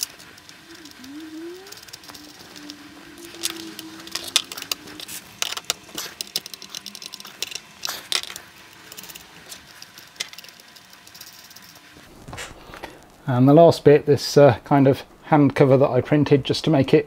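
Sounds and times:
small metal parts clinking: 3.4s - 11.8s.

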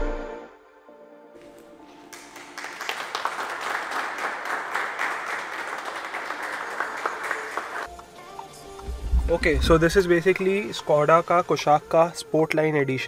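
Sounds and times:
small group clapping: 1.4s - 8.0s.

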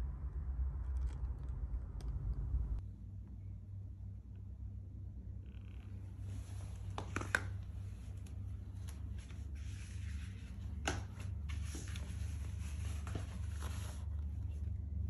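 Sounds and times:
steady low hum: 0.0s - 15.0s
sandals tapping on tile floor: 10.7s - 12.0s.

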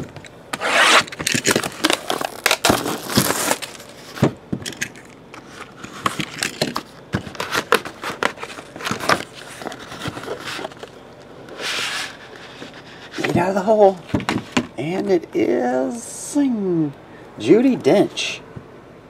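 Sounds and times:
packaging rustling: 0.5s - 14.6s
cardboard and plastic crackling: 0.5s - 14.7s.

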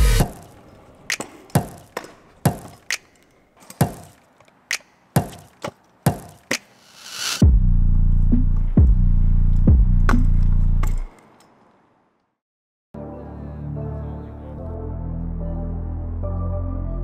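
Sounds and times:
scooter striking concrete: 0.2s - 6.6s.

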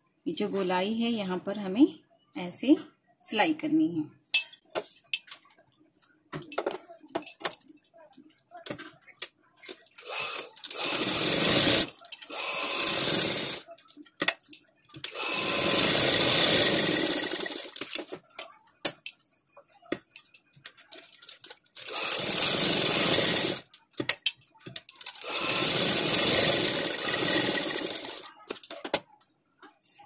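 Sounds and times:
sewing machine stitching: 10.0s - 13.7s, 15.0s - 18.0s, 21.3s - 23.7s, 25.0s - 28.8s.

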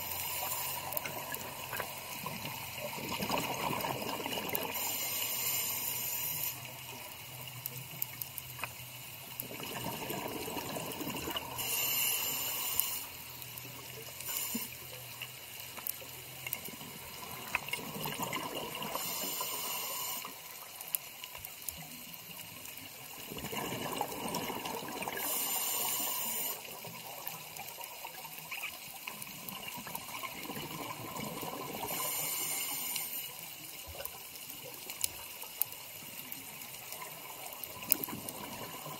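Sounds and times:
scuba regulator breath hiss: 0.0s - 2.4s, 4.5s - 6.9s, 11.5s - 15.0s, 18.8s - 20.6s, 25.0s - 27.5s, 31.7s - 33.7s
exhaled bubbles gurgling: 1.0s - 5.1s, 9.4s - 11.8s, 16.6s - 19.6s, 23.1s - 25.8s, 29.3s - 32.5s, 36.8s - 38.9s.

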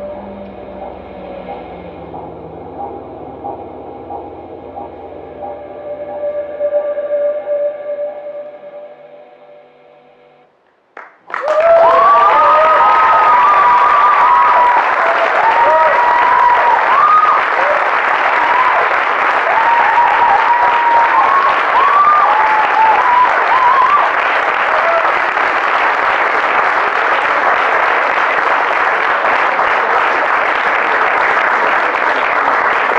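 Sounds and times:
audience applauding: 10.9s - 32.9s.

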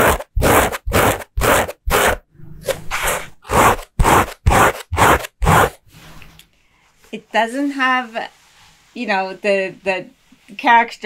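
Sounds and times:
denim being scratched: 0.0s - 6.0s.

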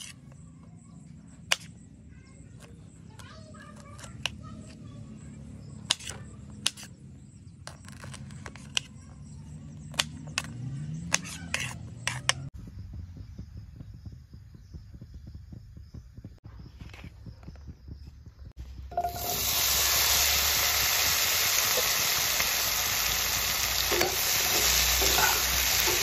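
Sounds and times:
pan crackling hiss on burner: 18.9s - 26.0s.

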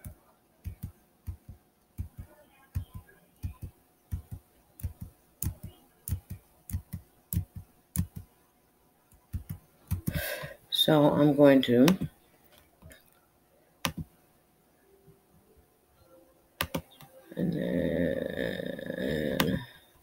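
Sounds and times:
computer mouse clicking: 0.0s - 8.3s, 9.1s - 10.2s, 13.8s - 14.1s, 16.6s - 17.1s.

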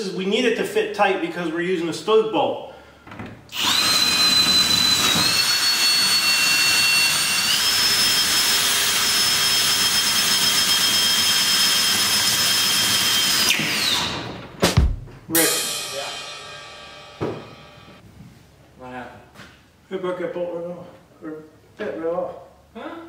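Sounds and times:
cordless drill whining: 3.5s - 14.3s.

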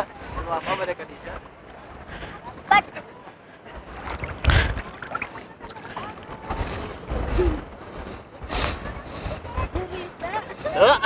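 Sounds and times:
faint voices: 0.0s - 11.0s
sea water rushing among rocks: 3.6s - 8.4s.

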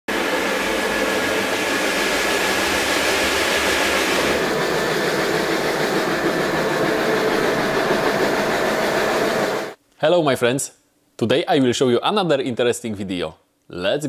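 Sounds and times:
carpet scrubbing machine humming: 0.0s - 9.8s.

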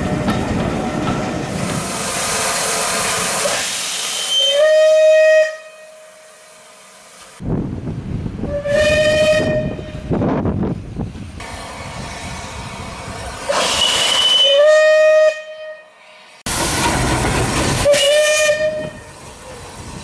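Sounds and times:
steam hissing: 1.4s - 5.0s, 11.4s - 14.6s, 16.1s - 20.0s
steam locomotive whistle: 2.7s - 6.9s, 8.5s - 10.1s, 13.5s - 16.0s, 17.8s - 19.2s
locomotive running noise: 16.5s - 20.0s.

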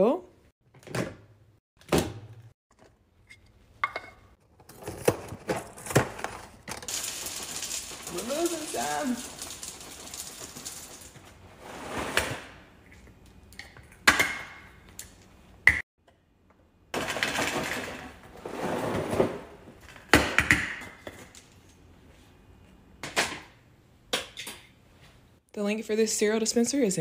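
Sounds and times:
cereal pouring and rattling: 6.2s - 11.4s.

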